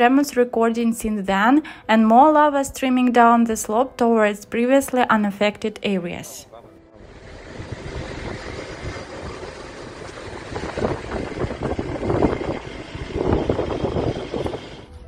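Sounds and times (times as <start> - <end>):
wind on microphone: 7.0 - 15.0.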